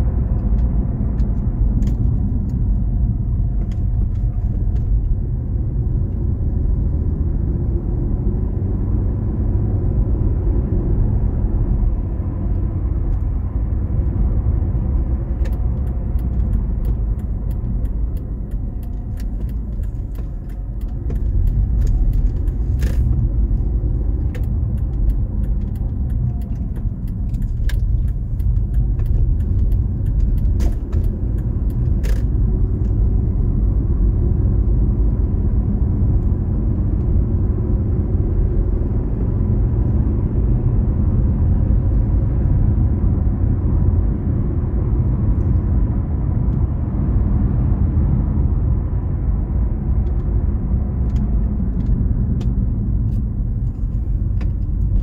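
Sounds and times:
vehicle rumble: 0.0s - 55.0s.

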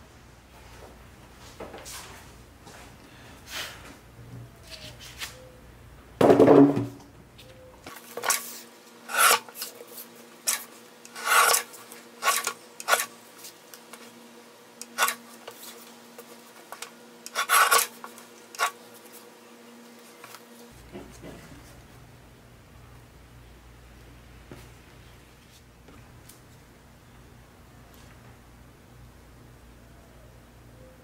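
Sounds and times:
paper trimmer cutting paper: 10.5s - 13.1s, 17.3s - 18.0s.

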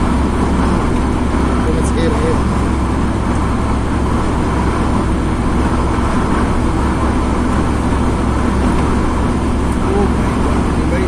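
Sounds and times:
car road noise from cabin: 0.0s - 11.0s.

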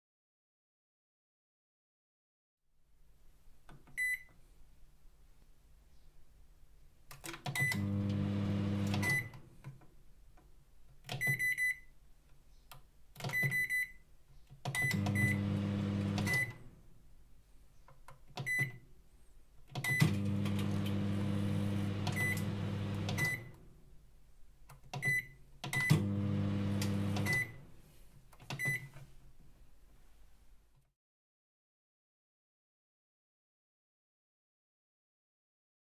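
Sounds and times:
microwave oven clicks: 7.5s - 9.4s, 14.8s - 16.6s, 19.8s - 23.6s, 25.7s - 27.6s
microwave oven beeping: 7.6s - 9.4s, 14.8s - 16.6s, 19.8s - 23.6s, 25.0s - 27.6s
microwave oven humming: 7.7s - 9.3s, 14.9s - 16.6s, 20.0s - 23.5s, 25.9s - 27.7s.

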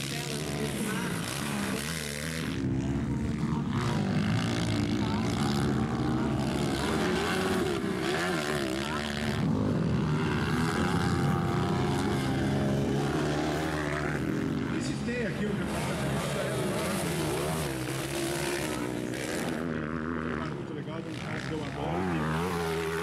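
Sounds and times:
dirt bike engines revving: 0.0s - 23.0s.

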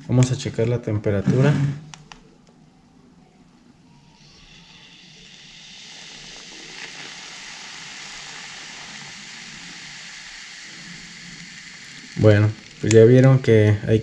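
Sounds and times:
steam iron hissing: 3.9s - 14.0s.

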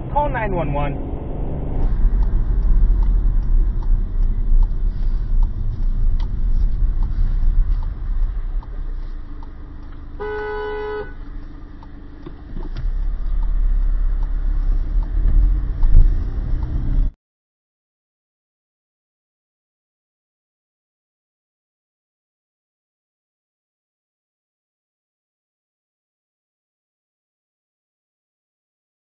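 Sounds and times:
car cabin road rumble: 0.0s - 17.2s
faint steady ticking: 1.9s - 17.1s
car horn toot: 10.1s - 11.2s.

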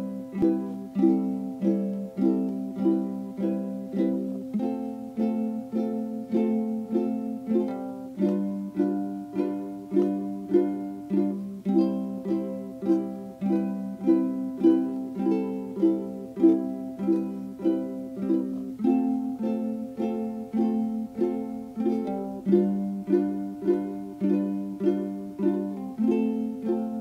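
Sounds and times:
plucked string instrument tune: 0.0s - 27.0s.

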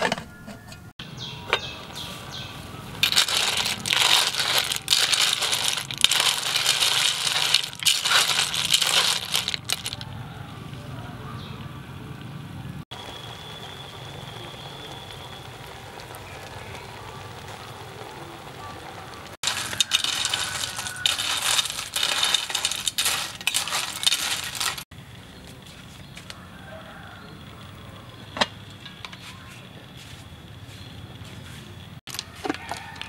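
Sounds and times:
snail shells clattering in pot: 2.9s - 10.3s, 19.4s - 24.9s, 32.1s - 33.0s.

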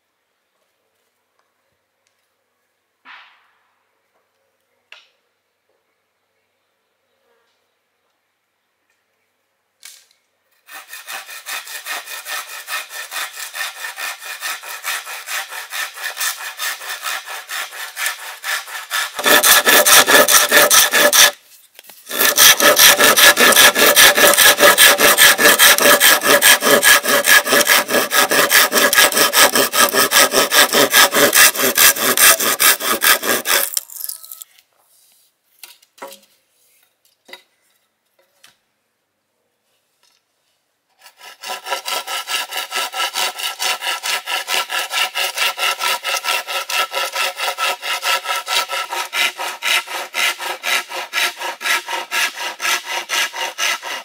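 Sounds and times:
hand saw cutting bamboo: 10.6s - 21.4s, 22.0s - 33.9s, 41.0s - 54.0s.

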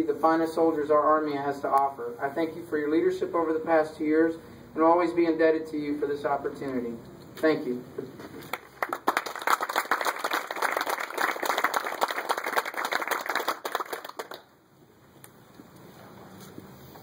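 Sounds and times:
audience applauding: 8.5s - 14.5s.

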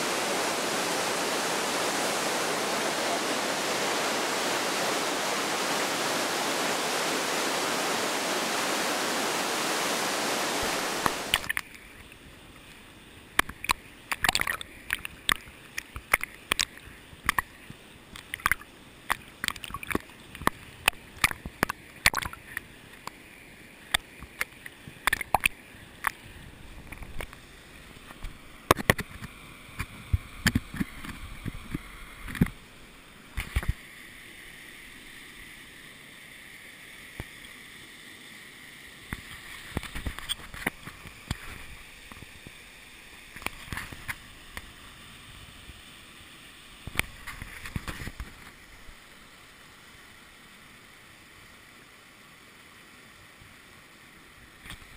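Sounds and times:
rush of falling water: 0.0s - 54.9s
water drops tapping camera: 11.0s - 11.7s, 13.4s - 22.6s.

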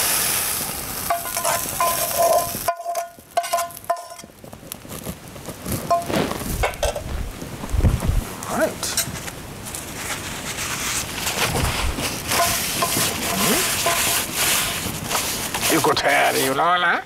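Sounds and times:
food frying in a pan: 0.0s - 7.2s, 10.6s - 16.6s
utensil scraping metal pan: 1.1s - 4.3s, 5.9s - 7.0s, 10.0s - 16.6s.

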